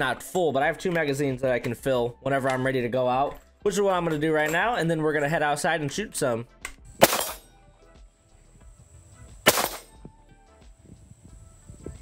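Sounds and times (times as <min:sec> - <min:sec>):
rifle shot: 0:07.0 - 0:07.5, 0:09.4 - 0:10.0.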